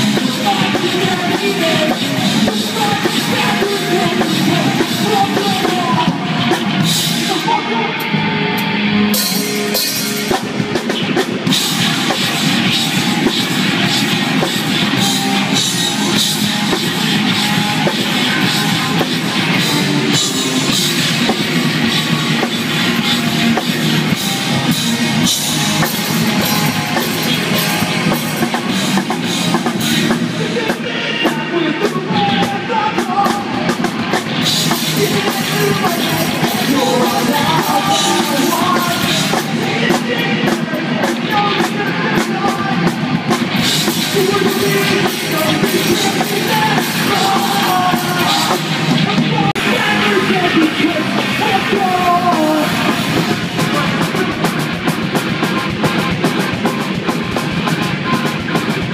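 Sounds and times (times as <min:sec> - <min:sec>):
person singing: 0:00.0 - 0:08.8, 0:28.2 - 0:54.8
bass guitar: 0:00.0 - 0:58.9
drum kit: 0:00.0 - 0:58.9
electric guitars: 0:00.0 - 0:58.9.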